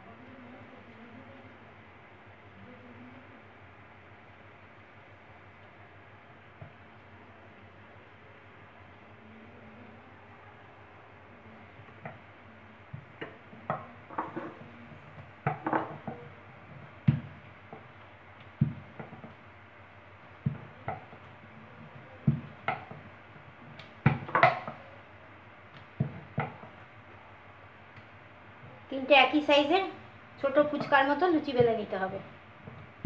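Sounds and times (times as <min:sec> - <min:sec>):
rolling pin knocking on a board: 0:12.9 - 0:17.9, 0:18.6 - 0:19.4, 0:20.4 - 0:23.1, 0:24.0 - 0:24.8, 0:26.0 - 0:26.8.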